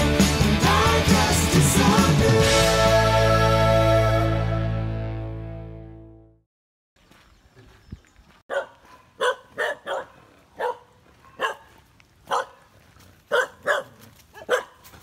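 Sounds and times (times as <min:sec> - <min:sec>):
dogs barking: 0:08.5 - 0:12.7, 0:13.3 - 0:15.0.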